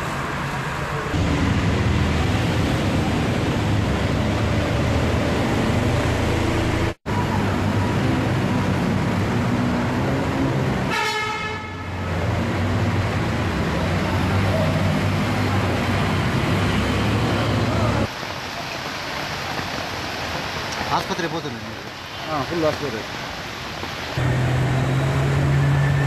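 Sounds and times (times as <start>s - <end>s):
vehicle engines running: 0.0s - 10.9s
vehicle horn: 10.9s - 12.0s.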